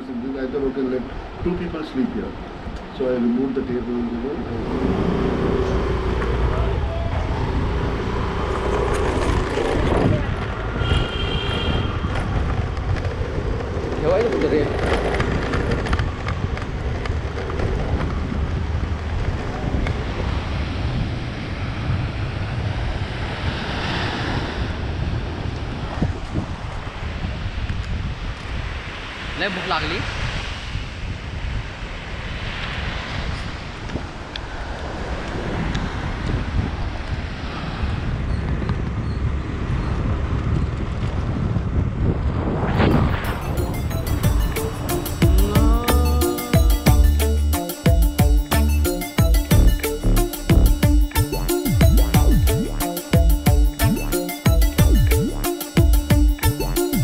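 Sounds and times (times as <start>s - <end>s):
wind buffeting microphone: 0.0s - 45.8s
surf washing onto beach: 18.1s - 38.0s.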